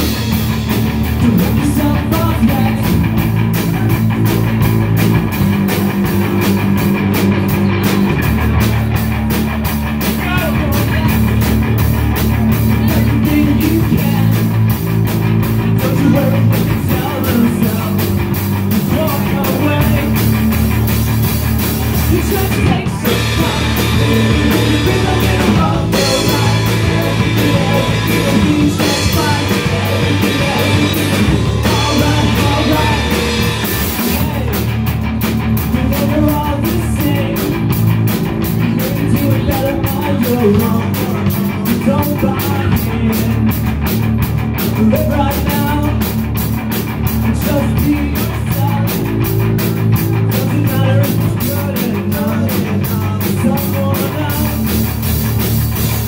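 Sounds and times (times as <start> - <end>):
drum kit: 0.0 - 56.0
electric bass: 0.0 - 56.0
electric guitar: 0.0 - 56.0
person singing: 1.1 - 4.2, 12.3 - 14.7, 15.6 - 20.4, 22.0 - 34.7, 35.6 - 37.6, 50.1 - 54.7.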